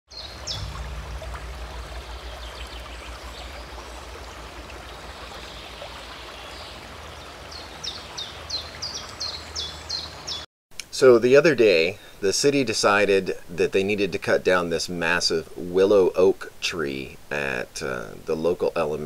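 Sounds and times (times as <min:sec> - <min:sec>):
bird chirping: 0:00.1 - 0:10.4
running water: 0:00.1 - 0:10.4.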